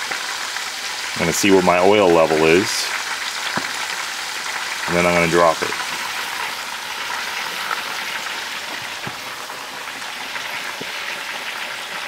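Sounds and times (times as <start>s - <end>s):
hot oil sizzling and crackling: 0.0s - 12.0s.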